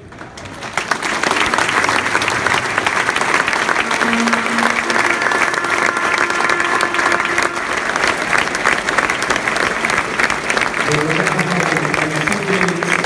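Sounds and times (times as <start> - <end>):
stadium crowd applauding: 0.0 - 13.0.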